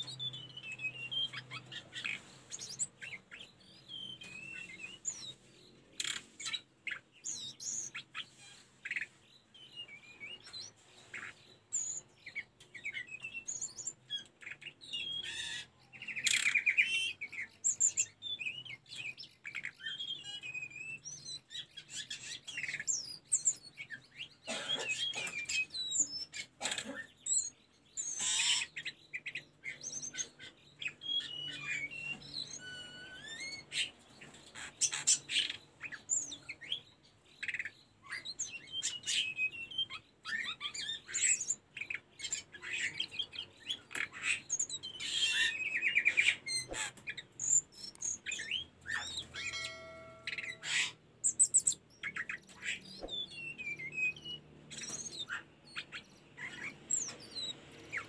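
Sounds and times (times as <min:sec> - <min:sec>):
buzzy bird trill: 0:28.0 - 0:36.8, 0:43.8 - 0:58.0
bird singing whistled phrases: 0:47.4 - 0:57.6.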